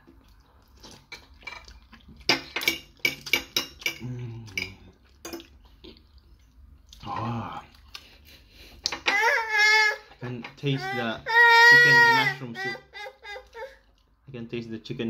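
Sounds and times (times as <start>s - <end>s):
slurping and chewing spaghetti: 0.0s - 2.3s, 3.8s - 8.9s
person humming mmm: 4.0s - 4.6s.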